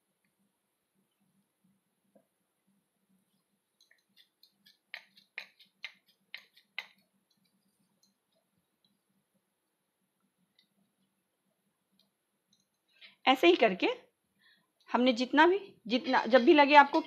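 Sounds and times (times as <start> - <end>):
hands patting dough into wooden mould: 3.8 - 8.6.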